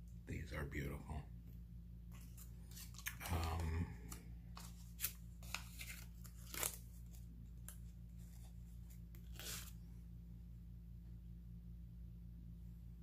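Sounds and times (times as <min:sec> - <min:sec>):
steady low hum: 0:00.0 - 0:13.0
packaging rustling and crinkling: 0:04.5 - 0:07.7.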